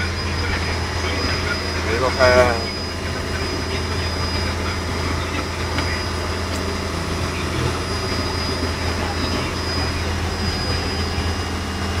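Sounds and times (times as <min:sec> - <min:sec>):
boat engine droning: 0:00.0 - 0:12.0
faint high whine: 0:00.0 - 0:12.0.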